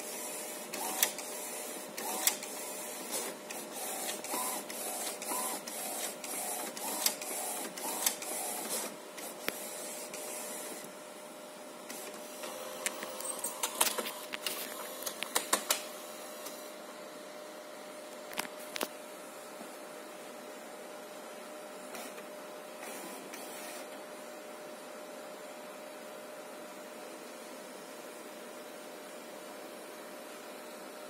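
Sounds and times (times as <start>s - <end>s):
printer carriage motor whirs: 0.0s - 11.0s, 11.8s - 16.7s, 21.9s - 24.1s
mechanical clicks and clacks: 0.7s - 1.3s, 2.0s - 2.5s, 6.7s - 8.3s.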